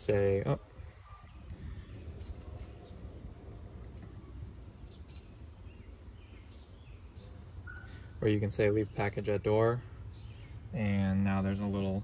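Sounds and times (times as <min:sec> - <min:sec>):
bird chirps: 0:00.2 - 0:03.2, 0:04.0 - 0:12.0
low rumble: 0:01.1 - 0:07.7.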